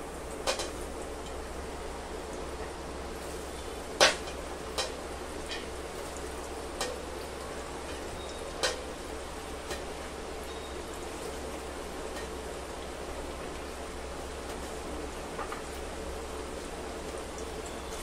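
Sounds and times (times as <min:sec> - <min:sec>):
fries sizzling in oil: 0:00.0 - 0:18.0.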